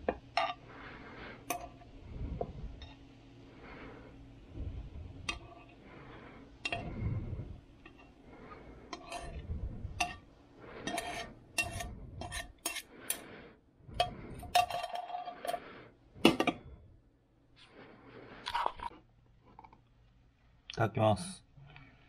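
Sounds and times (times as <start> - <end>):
fork scraping and tapping pan: 5.2 - 5.7, 8.9 - 9.4, 10.0 - 13.3.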